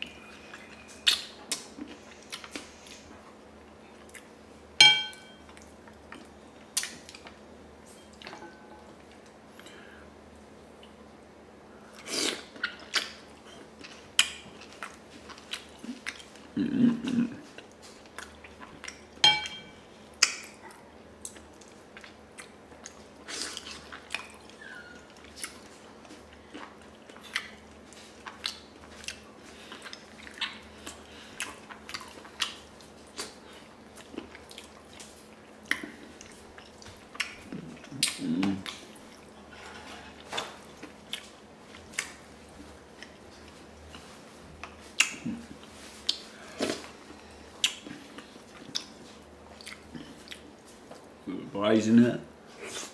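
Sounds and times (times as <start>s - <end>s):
spoon clinking in ceramic bowl: 4.8s - 5.4s, 19.2s - 19.8s
low hum: 4.8s - 5.6s
wet mouth smacking and chewing: 20.2s - 39.3s, 40.2s - 42.2s, 47.6s - 51.1s.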